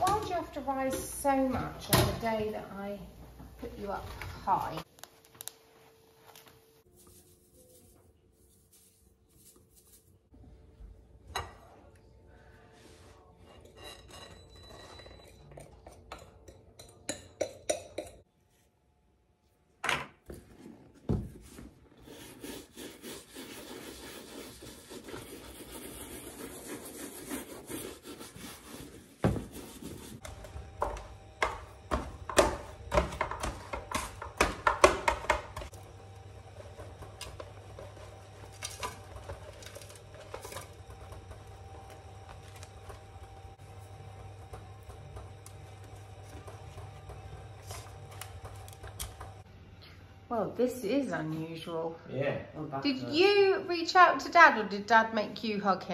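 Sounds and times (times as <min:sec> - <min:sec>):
shoe brush rasping on leather: 0:22.0 - 0:30.2.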